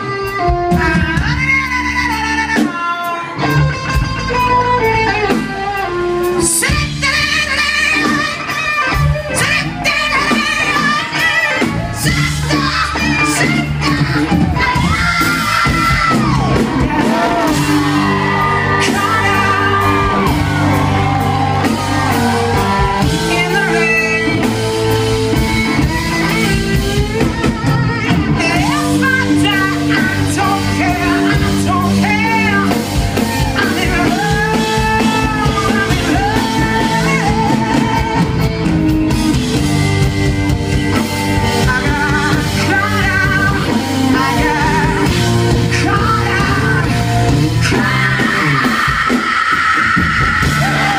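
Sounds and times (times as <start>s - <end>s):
woman singing into a microphone: 0.0s - 3.4s, 4.3s - 21.0s, 22.8s - 24.5s, 25.4s - 38.6s, 41.6s - 47.0s, 47.6s - 50.9s
electric guitar: 0.0s - 50.9s
live rock band playing: 0.0s - 50.9s.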